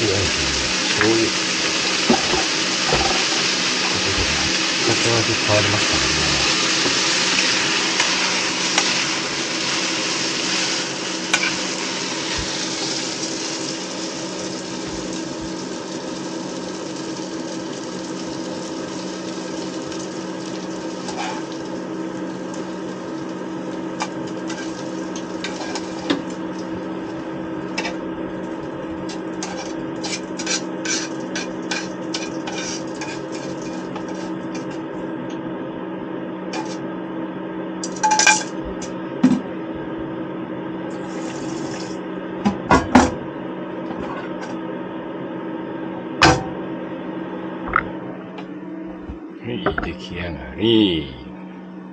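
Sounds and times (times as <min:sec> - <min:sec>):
steady low hum: 0:00.0 - 0:12.9, 0:43.3 - 0:51.9
noodles sizzling in frying pan: 0:00.8 - 0:04.9, 0:06.5 - 0:28.0, 0:40.9 - 0:42.0.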